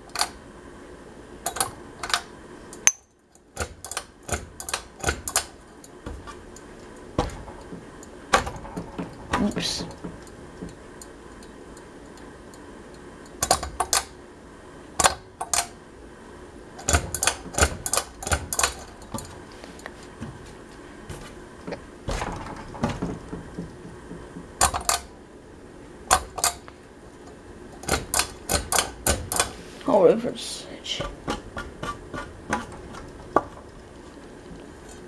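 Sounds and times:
sharp clicks and light rattles: 0:01.4 - 0:14.2, 0:16.8 - 0:20.0, 0:26.1 - 0:29.6.

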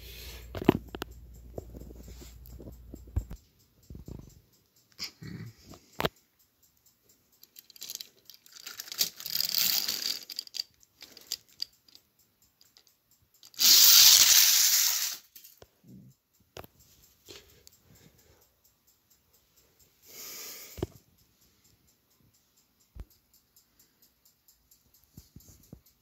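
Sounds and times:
clicks and scraping: 0:07.4 - 0:12.0
toy engines rolling on plastic track: 0:07.4 - 0:12.0, 0:12.6 - 0:15.6.

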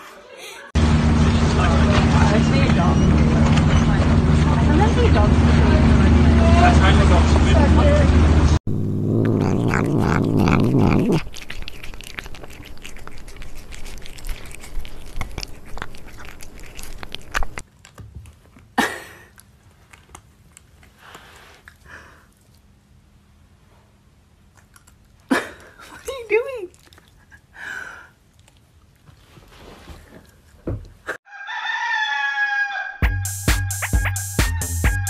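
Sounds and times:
cat crunching food: 0:08.7 - 0:18.6, 0:24.5 - 0:25.3, 0:26.7 - 0:27.4.

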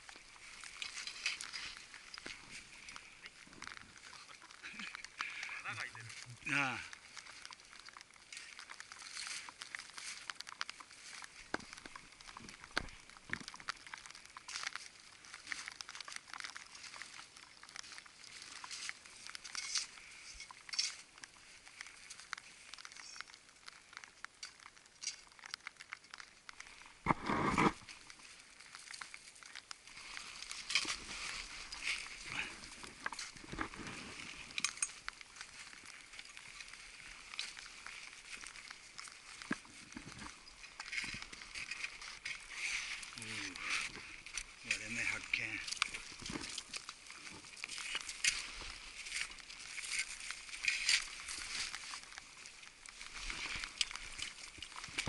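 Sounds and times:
crunching footsteps in snow: 0:00.0 - 0:55.0
climbing gear clinking: 0:30.0 - 0:52.0.

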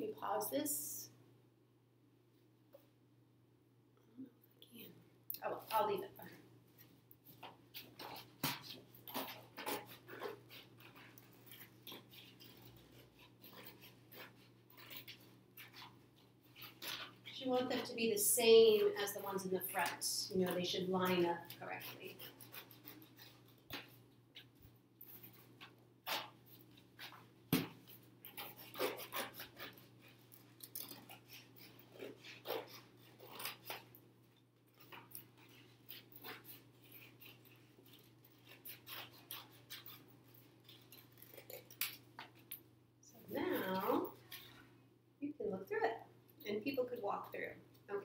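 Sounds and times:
scissors cutting cardboard: 0:07.3 - 0:24.5, 0:25.2 - 0:34.0, 0:34.7 - 0:42.4.

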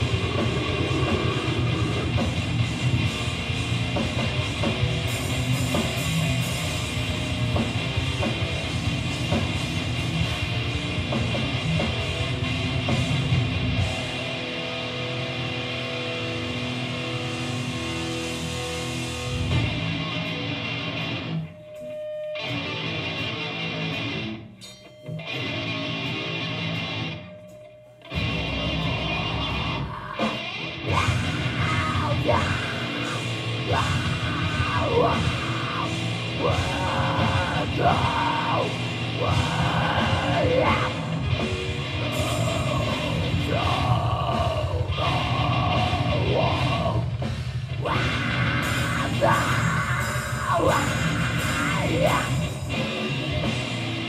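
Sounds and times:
yelled vocals: 0:00.0 - 0:09.2, 0:28.8 - 0:54.0
heavy metal band playing live: 0:00.0 - 0:21.5, 0:22.4 - 0:27.4, 0:28.1 - 0:54.0.

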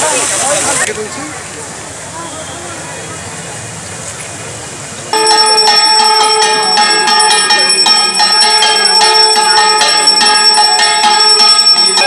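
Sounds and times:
bell rung rapidly: 0:05.2 - 0:12.0.

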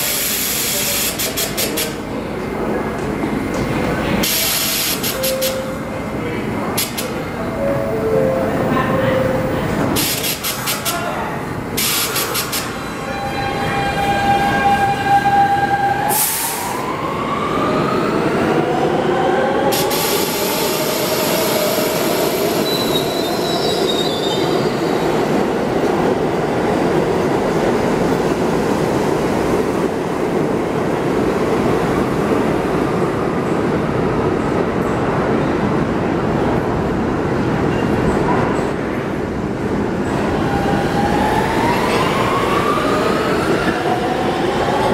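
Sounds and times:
subway traction motor whine: 0:00.0 - 0:44.9
train cars rumbling on rails: 0:00.0 - 0:44.9.

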